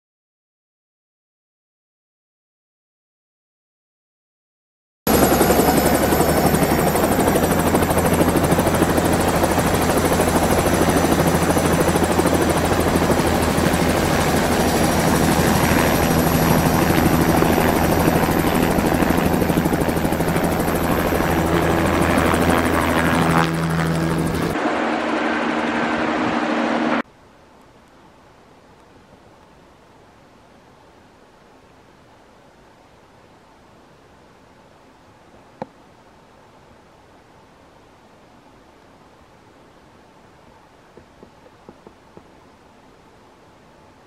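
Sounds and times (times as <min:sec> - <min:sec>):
helicopter rotor beat: 0:05.1 - 0:27.0
high whine: 0:05.1 - 0:27.0.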